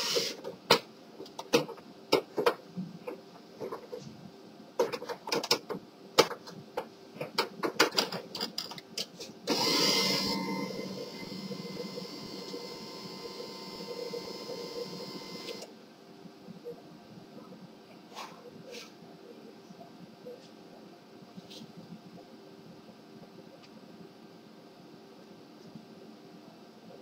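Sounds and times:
printer mechanism running with whine: 0:00.0 - 0:00.7, 0:09.4 - 0:15.8.

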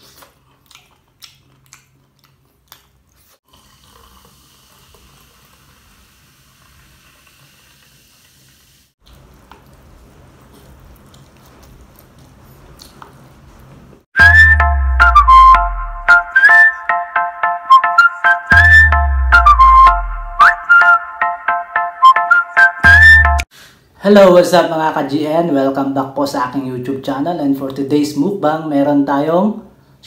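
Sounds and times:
biting and chewing: 0:00.0 - 0:04.0, 0:09.0 - 0:13.8
soda pouring and fizzing: 0:03.4 - 0:08.9.

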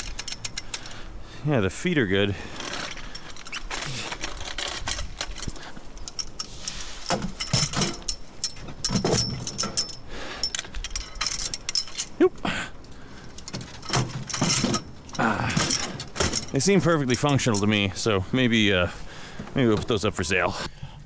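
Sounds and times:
metal scrap clinking and rattling: 0:00.0 - 0:01.0, 0:02.4 - 0:12.2, 0:13.2 - 0:18.1.

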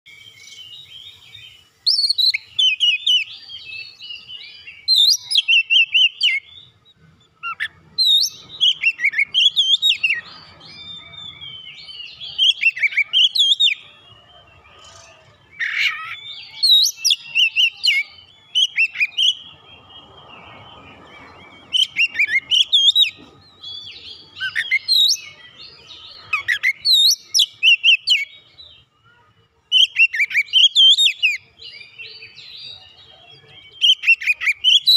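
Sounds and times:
bird singing whistled phrases: 0:00.1 - 0:34.9.

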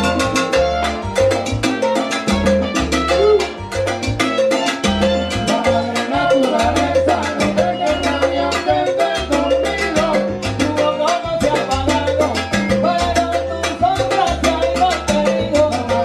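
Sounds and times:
bass line: 0:00.0 - 0:16.0
congas: 0:00.0 - 0:16.0
salsa band playing: 0:00.0 - 0:16.0
lead vocal singing: 0:05.4 - 0:12.4.

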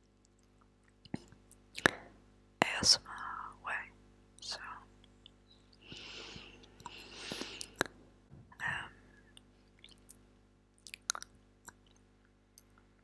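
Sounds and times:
wet mouth clicks: 0:00.3 - 0:02.8, 0:06.6 - 0:08.0, 0:09.4 - 0:10.2, 0:10.8 - 0:12.8
breathy puff: 0:05.9 - 0:07.7.

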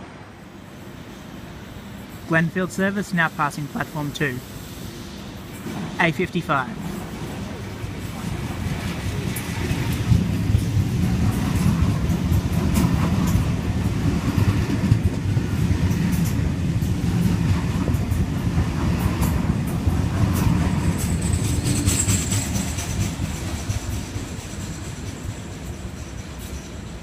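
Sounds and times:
train wheels rumbling: 0:00.4 - 0:27.0
wheels clicking over rail joints: 0:07.8 - 0:27.0.

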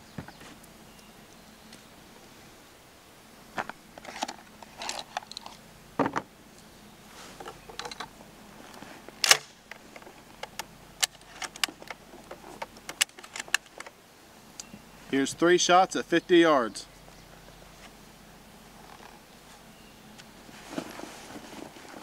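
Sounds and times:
rustling: 0:07.0 - 0:14.0, 0:18.7 - 0:22.0.

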